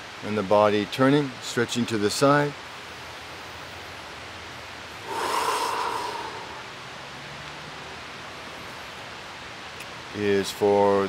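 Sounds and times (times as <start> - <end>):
man exhaling forcefully: 5.0 - 6.8.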